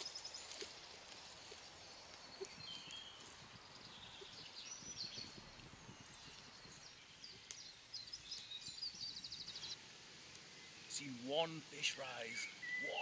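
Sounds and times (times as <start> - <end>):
footsteps swishing through grass: 0.0 - 4.3
songbirds chirping and trilling: 0.0 - 13.0.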